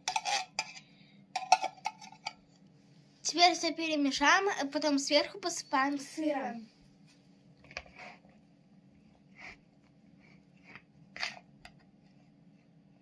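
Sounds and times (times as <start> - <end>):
spoon scraping plastic bowl: 0.0 - 0.8, 7.7 - 8.4, 10.2 - 11.5.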